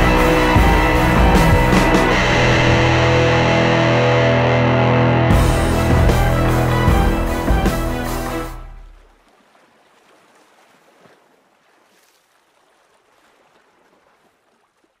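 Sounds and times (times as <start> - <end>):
distorted rock guitar music: 0.0 - 8.8.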